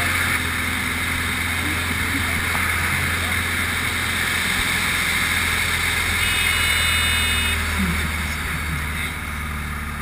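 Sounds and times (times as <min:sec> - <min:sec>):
high steady tone: 0:06.2 - 0:07.7.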